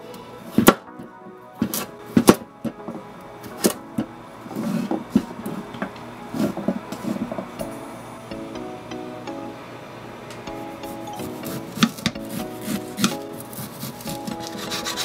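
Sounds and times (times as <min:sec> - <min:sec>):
light guitar music: 0:10.3 - 0:15.0.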